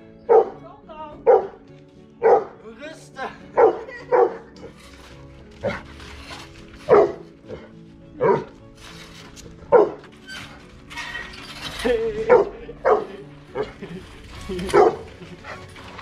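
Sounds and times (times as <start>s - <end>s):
background music: 0.0s - 16.0s
large dog barking: 0.3s - 0.6s, 1.2s - 1.6s, 2.2s - 2.6s, 3.6s - 4.7s, 5.6s - 5.9s, 6.8s - 8.5s, 9.6s - 10.0s, 12.2s - 13.8s, 14.6s - 15.8s.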